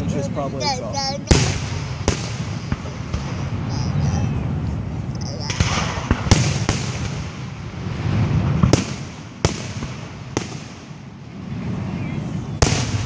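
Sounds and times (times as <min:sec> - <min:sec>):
firework shells bursting: 0:05.4 - 0:11.0.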